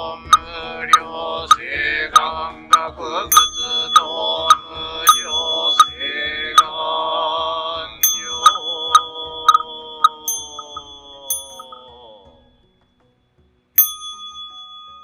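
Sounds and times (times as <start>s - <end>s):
group chanting in unison: 0.0s - 3.3s, 4.0s - 8.0s
small bowl bell ringing: 3.3s - 6.7s, 8.0s - 12.3s, 13.8s - 15.0s.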